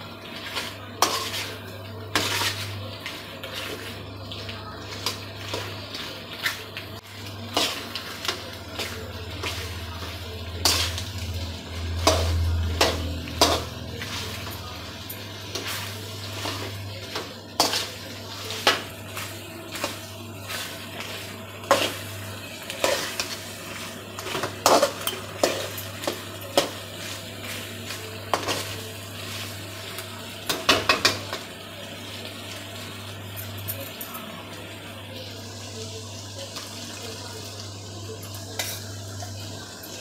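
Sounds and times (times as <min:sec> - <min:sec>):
light sizzle of frying: 0:00.0 - 0:40.0
spatula scraping metal pan: 0:00.5 - 0:02.8.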